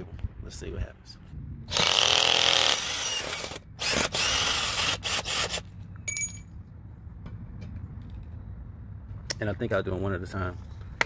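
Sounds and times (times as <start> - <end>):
cordless drill running: 1.7 - 5.7
metallic clink: 6.0 - 6.6.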